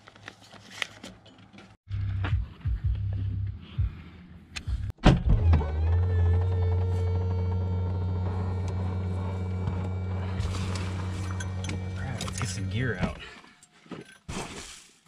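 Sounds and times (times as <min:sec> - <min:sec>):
low mechanical hum: 0:05.4 - 0:13.2.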